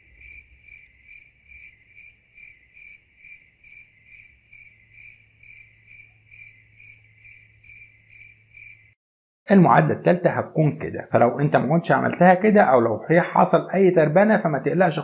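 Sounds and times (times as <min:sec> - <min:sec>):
crickets chirping: 0:00.0 - 0:09.0.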